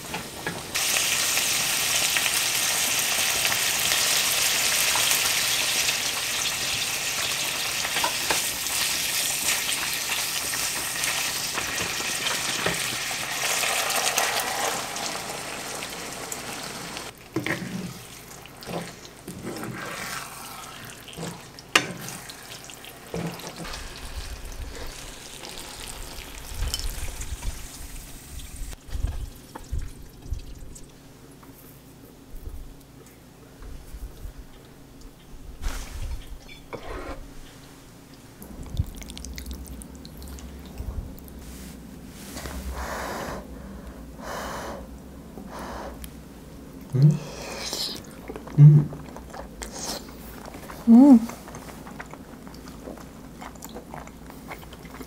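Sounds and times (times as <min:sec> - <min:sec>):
meat sizzling in a frying pan: 0:00.7 - 0:17.1, 0:21.7 - 0:28.8.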